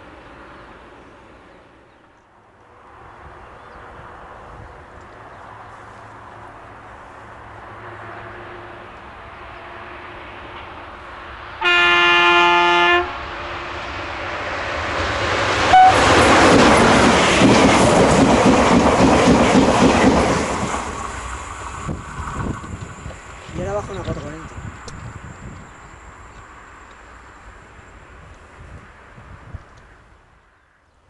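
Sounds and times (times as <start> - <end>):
two-tone train horn: 11.6 - 13.2, 15.7 - 16.2
train wheels clattering over rails: 15.2 - 25.0.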